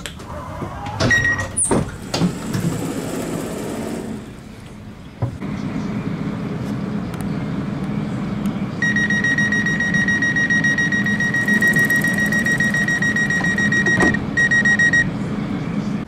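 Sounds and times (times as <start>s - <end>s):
low hum: 2.0s - 15.0s
steady high warning beep: 8.8s - 15.1s.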